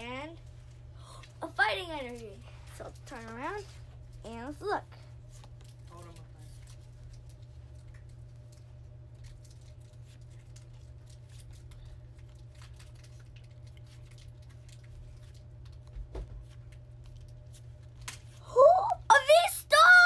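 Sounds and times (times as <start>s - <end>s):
steady low hum: 0.0s - 20.0s
girl squealing: 18.5s - 20.0s.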